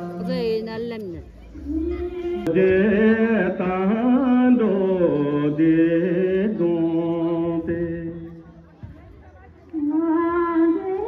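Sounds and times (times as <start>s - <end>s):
person singing chant-like melody: 1.6s - 8.6s.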